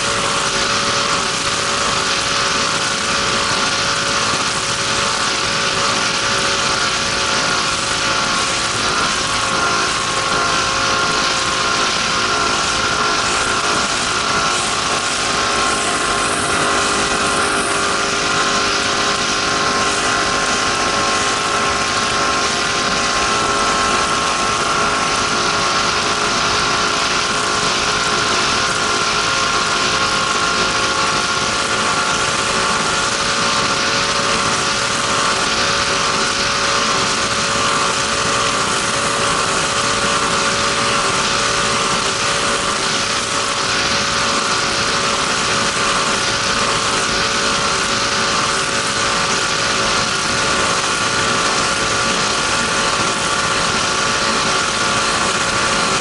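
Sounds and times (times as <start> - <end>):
constant rushing noise: 0.0 - 56.0
powerboat engine running: 0.0 - 56.0.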